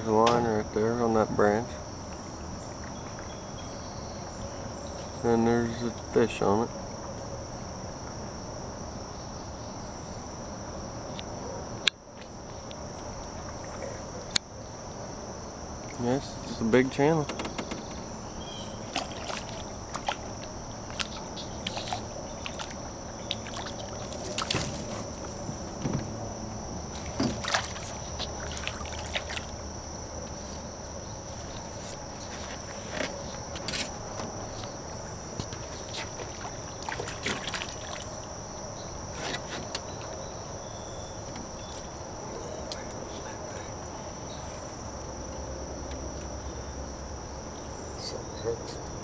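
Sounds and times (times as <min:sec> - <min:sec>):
high-pitched insect drone: 0:12.4 - 0:39.1
fish splashing in water: 0:18.0 - 0:25.6, 0:26.8 - 0:30.2, 0:35.5 - 0:38.6.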